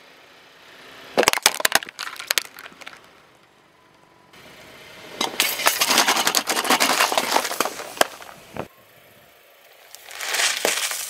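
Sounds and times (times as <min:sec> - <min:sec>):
cans crushed under a tyre: 0:01.2 - 0:03.1, 0:05.2 - 0:08.4, 0:10.0 - 0:11.0
bag of sweets crunching: 0:05.4 - 0:08.3, 0:10.0 - 0:11.0.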